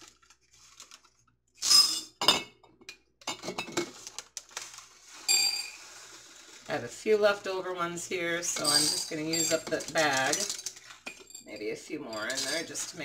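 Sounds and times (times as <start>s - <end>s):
dry lentils rattling into jars: 8.5s - 13.0s
glass jars clinking: 8.5s - 13.0s.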